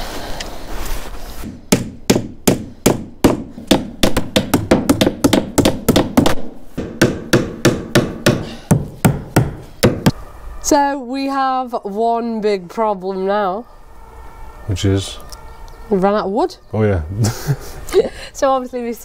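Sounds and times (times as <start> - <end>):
hammer nailing wooden planks: 1.4 - 10.1.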